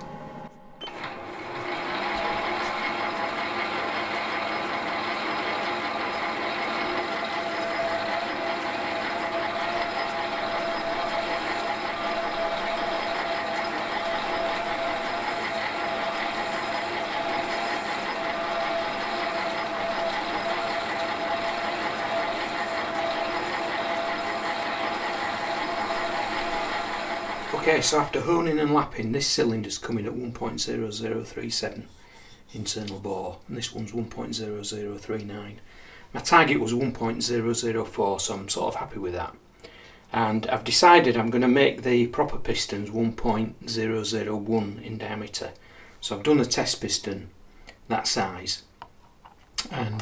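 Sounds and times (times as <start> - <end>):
lathe whining: 0.0 - 28.9.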